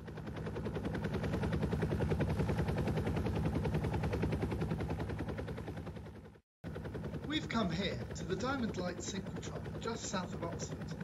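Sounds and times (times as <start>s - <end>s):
person imitating a helicopter: 7.3s - 11.0s.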